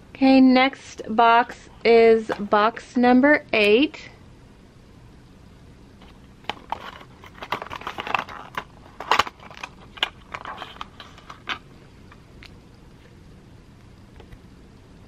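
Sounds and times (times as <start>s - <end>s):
paperboard box clicks and rustles: 6.0s - 11.6s.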